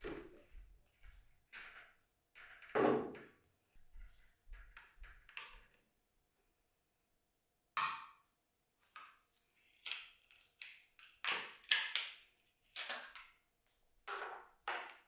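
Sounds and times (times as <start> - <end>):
kitchen items knocking on wood table: 2.6 - 3.3.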